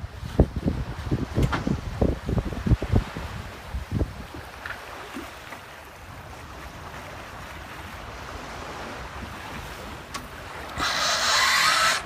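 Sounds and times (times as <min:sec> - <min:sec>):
water rushing along hull: 0:00.0 - 0:12.0
wind buffeting microphone: 0:00.0 - 0:12.0.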